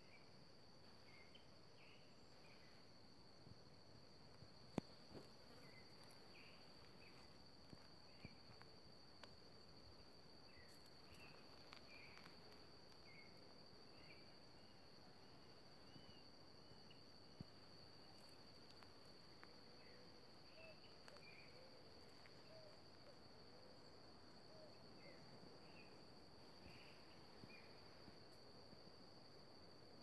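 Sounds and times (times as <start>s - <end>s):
high-pitched insect trill: 0.0s - 30.0s.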